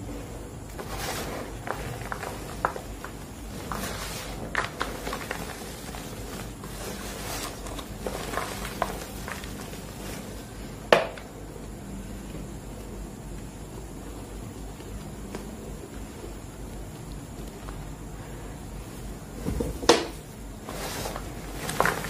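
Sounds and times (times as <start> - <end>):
hands rubbing chalk powder: 0.7 - 10.6, 20.6 - 22.0
chalk chunks crunching: 0.7 - 10.7, 20.4 - 22.0.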